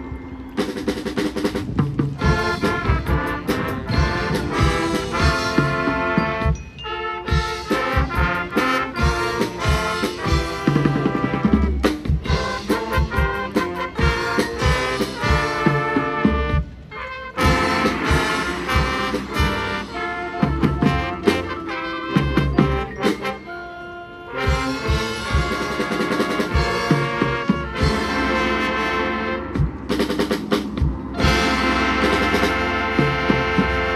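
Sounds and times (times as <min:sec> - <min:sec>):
marching band brass: 0:00.0 - 0:33.9
drum and percussion hits: 0:07.3 - 0:16.6, 0:29.5 - 0:33.9.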